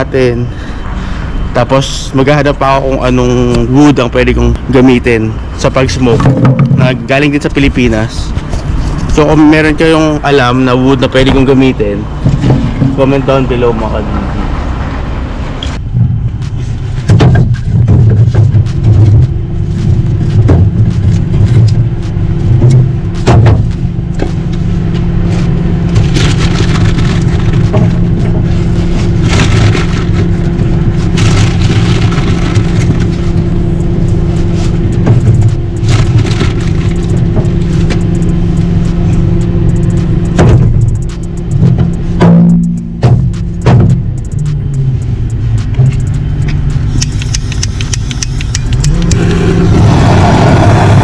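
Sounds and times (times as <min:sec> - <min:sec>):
low hum and rumble: 0:00.0 - 0:51.0
firewood knocking and scraping: 0:06.1 - 0:07.0, 0:16.4 - 0:21.8.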